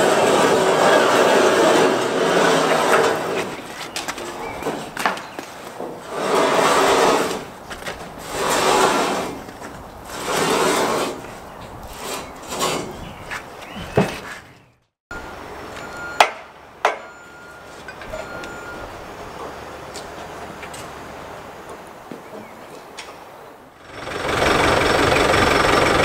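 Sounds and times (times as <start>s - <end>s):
steel rails scraping over stone: 0.0s - 14.7s
sharp metal knocks: 16.2s - 17.2s.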